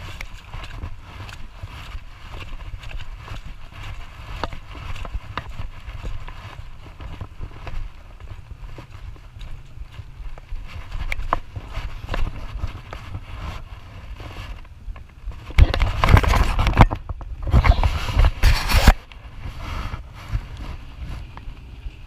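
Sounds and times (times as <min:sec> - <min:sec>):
wind buffeting microphone: 0:00.0 - 0:22.0
sharp clicks and rattles: 0:14.6 - 0:19.2.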